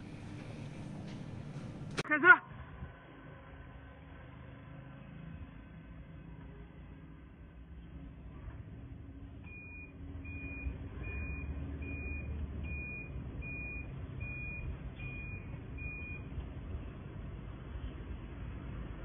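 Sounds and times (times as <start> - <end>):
reversing beeper beeps: 9.5 - 16.2.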